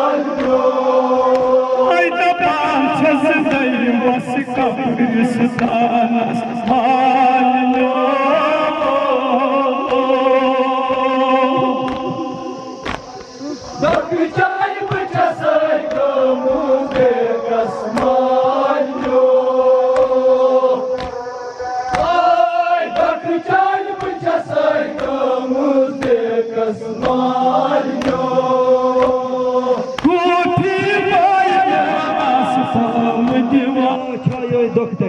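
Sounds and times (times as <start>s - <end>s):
person singing into a microphone: 0.0s - 12.8s, 13.4s - 35.0s
men chanting: 0.0s - 35.0s
hands slapping chests: 0.4s - 0.6s, 1.3s - 1.6s, 11.7s - 14.1s, 15.8s - 16.2s, 16.8s - 17.2s, 17.9s - 18.2s, 18.9s - 19.3s, 19.9s - 23.2s, 23.9s - 24.3s, 24.9s - 25.3s, 26.0s - 26.2s, 27.0s - 28.3s, 29.0s - 29.2s, 29.8s - 30.1s.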